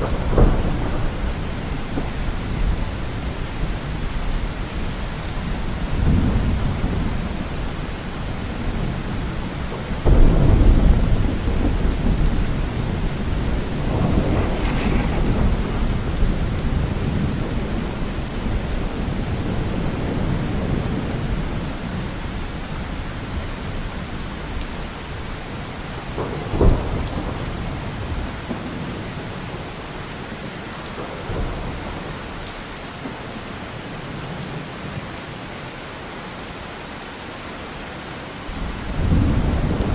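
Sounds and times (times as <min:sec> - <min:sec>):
rolling thunder: 0:00.0 - 0:25.2, 0:25.9 - 0:29.7, 0:38.6 - 0:39.9
steady rain: 0:00.0 - 0:39.9.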